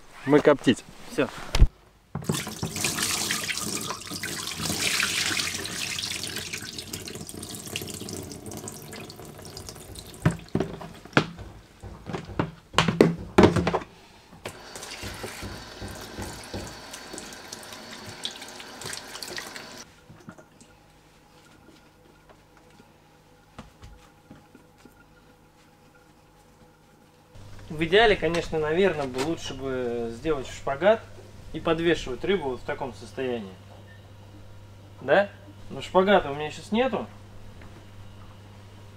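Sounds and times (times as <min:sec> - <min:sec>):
tap water running: 0:02.2 - 0:12.2, 0:14.4 - 0:20.7
sharp knocks and clatters: 0:10.2 - 0:13.9.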